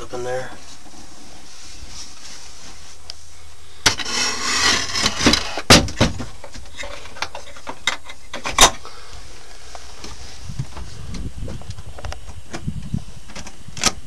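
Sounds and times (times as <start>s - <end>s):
rustling: 0.4s - 8.3s.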